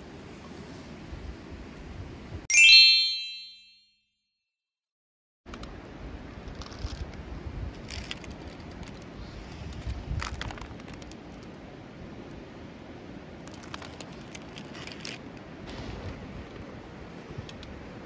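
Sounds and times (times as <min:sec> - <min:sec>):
plastic package rustling: 0:13.5 - 0:15.2.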